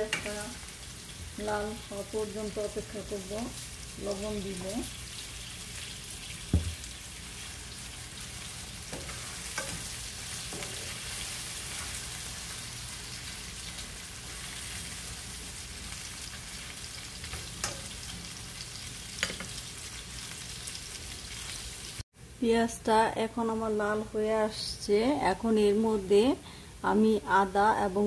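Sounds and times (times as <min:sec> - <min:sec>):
onions sizzling in oil: 0:00.0 - 0:22.3
sharp knock: 0:06.5 - 0:06.8.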